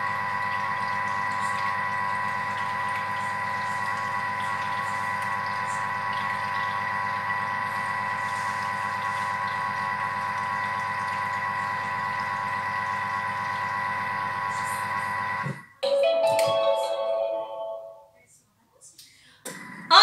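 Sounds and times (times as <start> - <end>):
food processor motor whine: 0.0 - 15.7.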